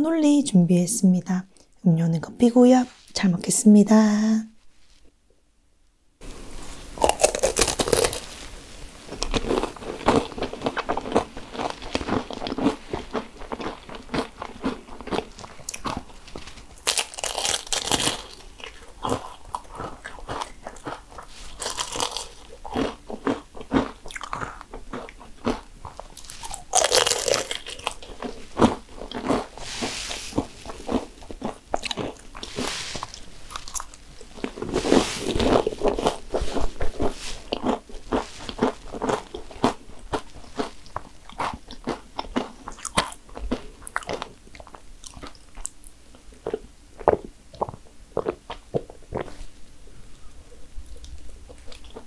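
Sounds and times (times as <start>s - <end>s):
crackly chewing: 6.9s - 52.0s
pastry shell crunching: 7.0s - 8.4s, 9.1s - 45.7s.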